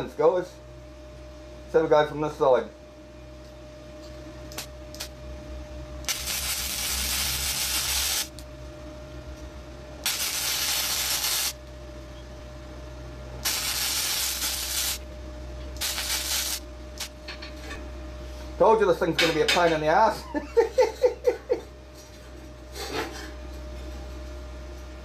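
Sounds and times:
faint steady hum: 0.0s - 19.1s
arc welding crackle: 4.4s - 5.2s, 6.0s - 8.5s, 10.0s - 11.7s, 13.4s - 17.4s.

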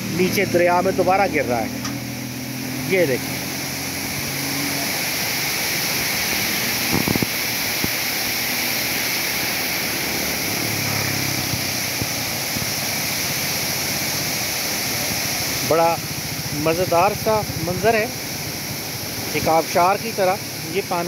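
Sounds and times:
vehicle engine hum passing: 0.0s - 13.6s
water rushing and splashing: 0.0s - 21.0s.

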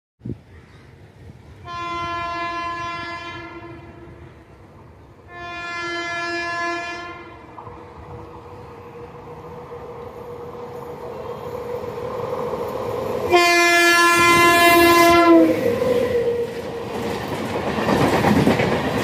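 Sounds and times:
train rumble and hum: 0.3s - 19.0s
train horn blasts: 1.6s - 4.6s, 5.2s - 7.6s, 13.3s - 15.8s.

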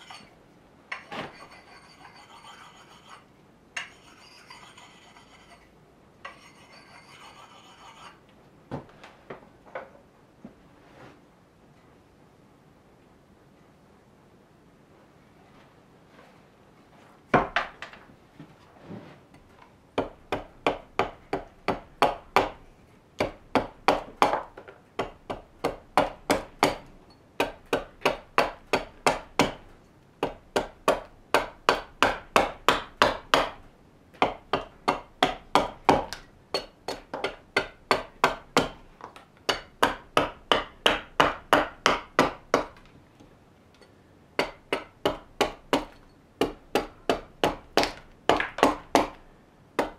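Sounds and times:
hatchet chopping wood: 20.0s - 42.9s, 44.4s - 49.2s.

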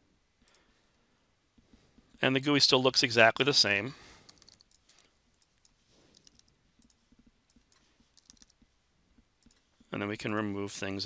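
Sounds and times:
keyboard and mouse clicks: 4.3s - 8.7s, 9.4s - 9.7s.

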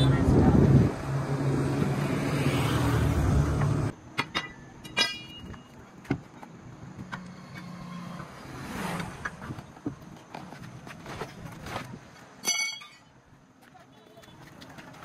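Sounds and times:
vehicle engine drone: 0.0s - 4.1s
metal clinks of wheel spanner: 4.1s - 5.7s, 12.4s - 13.1s.

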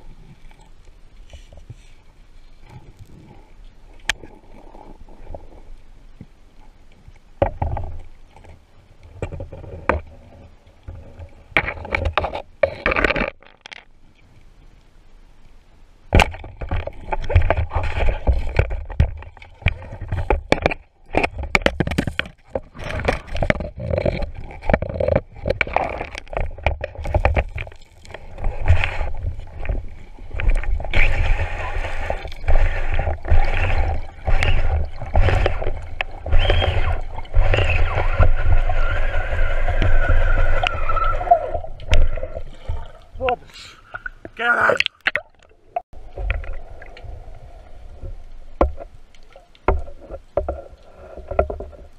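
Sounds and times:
spear knocking and scraping rock: 10.9s - 13.9s, 16.1s - 43.4s
underwater rush of water: 16.0s - 51.9s.

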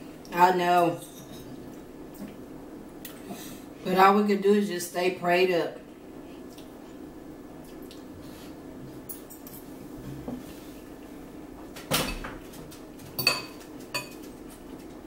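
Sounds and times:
cutlery and dishes clattering: 13.1s - 14.3s
fork clinking on a plate: 13.2s - 14.2s.

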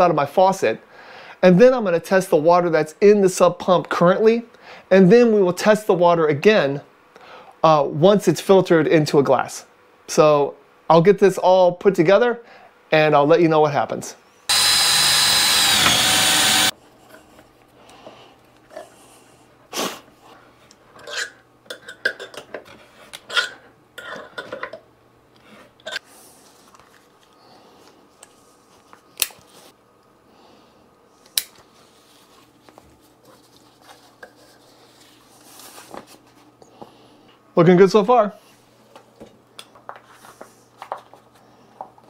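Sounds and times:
faint steady hum: 0.0s - 42.0s
loud whir: 14.5s - 16.7s.

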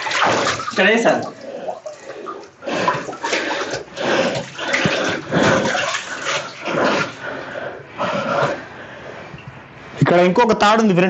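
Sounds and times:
person wading through water: 0.0s - 8.8s.

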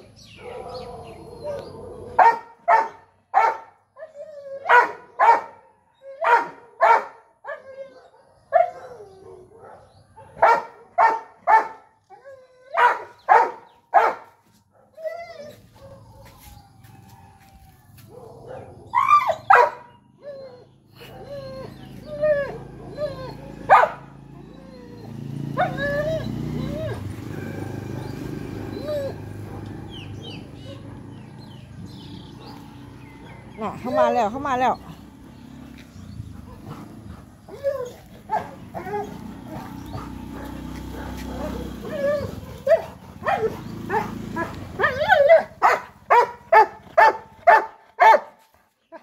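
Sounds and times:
dog barking: 0.4s - 3.7s, 4.7s - 7.2s, 8.0s - 11.9s, 12.8s - 15.0s, 18.1s - 20.0s, 23.6s - 24.2s, 25.5s - 26.0s, 30.6s - 31.4s, 38.3s - 48.4s
dog whining and yelping: 4.0s - 5.0s, 11.6s - 13.4s, 14.9s - 16.4s, 18.9s - 27.7s, 28.6s - 29.6s, 35.9s - 48.2s.

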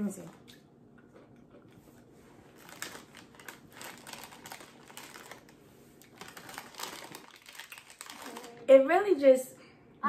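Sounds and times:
plastic snack bag crinkling: 2.0s - 8.7s.

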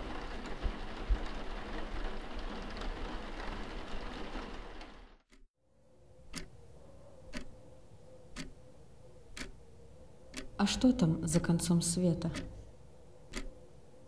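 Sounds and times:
clock ticking: 6.3s - 6.6s, 7.3s - 7.5s, 8.3s - 8.6s, 9.3s - 9.6s, 10.3s - 12.7s, 13.3s - 13.6s.

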